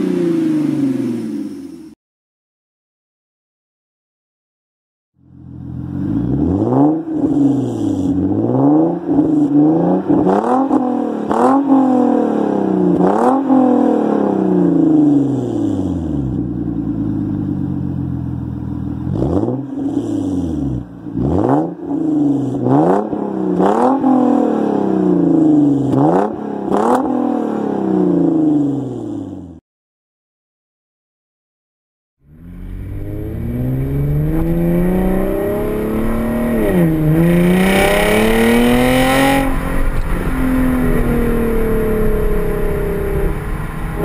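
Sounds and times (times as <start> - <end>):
car engine revving: 5.2 - 29.6, 32.2 - 44.0
exhaust crackles: 32.3 - 44.0.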